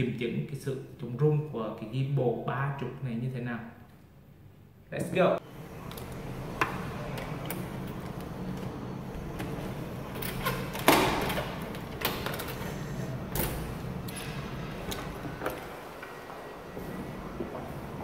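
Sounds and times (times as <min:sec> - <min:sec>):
metallic lock clunk: 0:05.8 - 0:15.8
keys rattling: 0:07.0 - 0:16.0
key turning in lock: 0:09.3 - 0:14.2.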